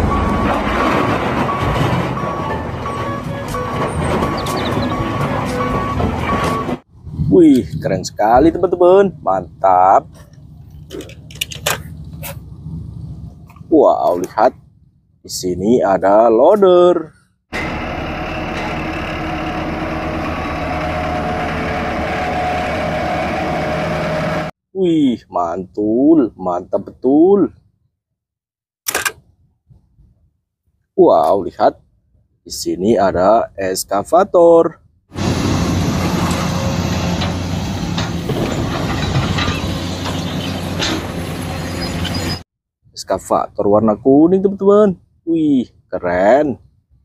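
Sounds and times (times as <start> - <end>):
truck engine idling: 0.0 - 7.1, 8.2 - 15.2, 17.5 - 24.5.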